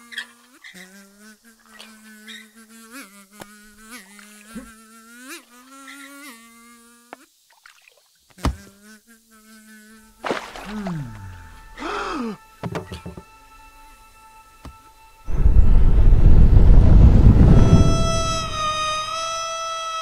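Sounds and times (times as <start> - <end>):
cartoon fly buzzing: 0.0 - 7.6, 8.3 - 13.6, 17.4 - 20.0.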